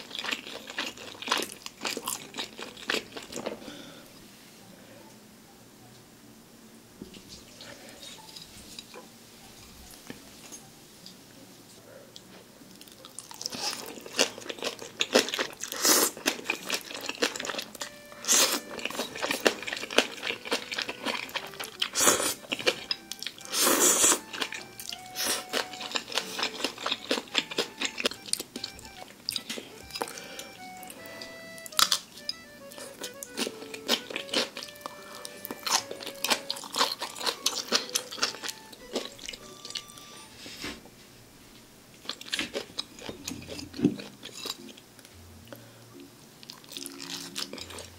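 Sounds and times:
wet chewing: 0.0 - 3.9, 12.2 - 40.2, 42.0 - 45.1, 46.4 - 47.9
crunchy chewing: 0.0 - 4.0, 12.2 - 40.7, 42.0 - 45.6, 46.4 - 47.9
noodles slurping: 13.2 - 28.2
light background music: 16.2 - 40.8, 43.0 - 47.9.

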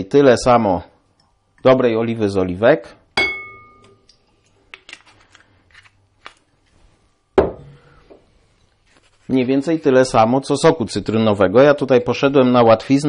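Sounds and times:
glass clink: 3.2 - 4.0
object set down knock: 7.4 - 8.2.

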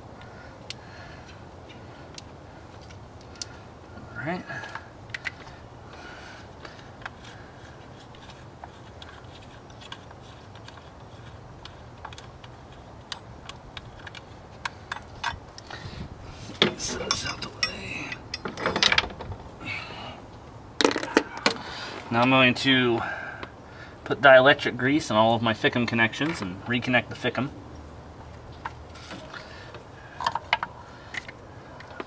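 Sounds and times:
metal clicks and clinks: 16.9 - 19.0.

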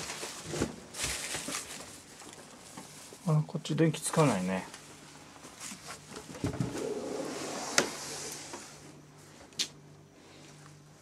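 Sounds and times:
rustling and movement: 0.0 - 3.3, 4.1 - 9.5.

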